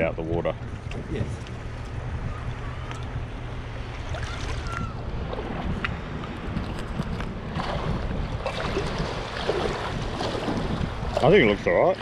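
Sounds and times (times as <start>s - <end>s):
wind rumbling on microphone: 0.0s - 12.0s
sea water lapping and splashing: 0.8s - 12.0s
small splashes: 3.9s - 5.6s, 7.6s - 11.3s.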